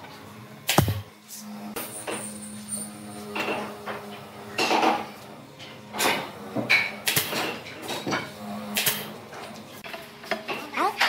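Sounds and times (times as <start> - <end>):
nail gun firing into wood: 0.7 - 1.0.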